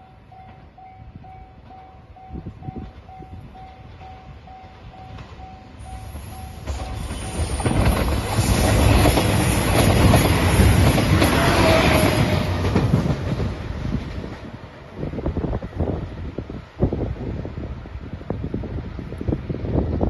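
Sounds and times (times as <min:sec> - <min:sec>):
level crossing warning bell: 0:00.0 - 0:07.5
diesel train passing: 0:00.0 - 0:20.0.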